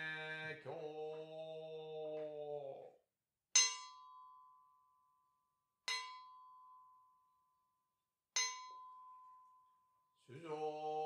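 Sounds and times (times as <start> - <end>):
bowl bell ringing: 3.6 - 5.2, 5.9 - 7.6, 8.4 - 10.1.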